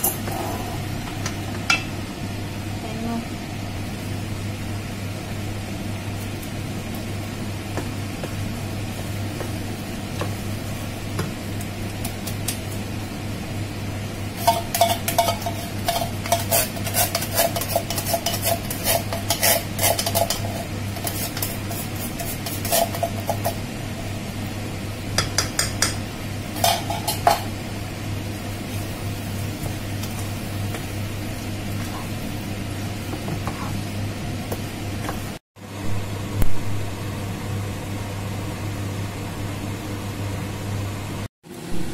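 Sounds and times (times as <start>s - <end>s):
spatula scraping frying pan: 14.4s - 23.6s.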